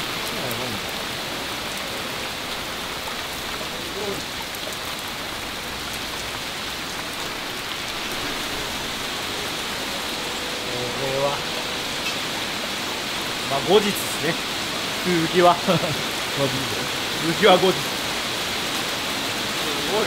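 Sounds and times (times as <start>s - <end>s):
steady rain downpour: 0.0s - 20.0s.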